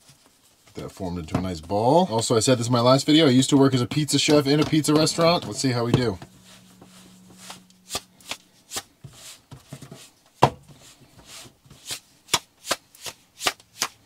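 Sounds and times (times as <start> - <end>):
hands slapping dough: 11.2 - 14.0.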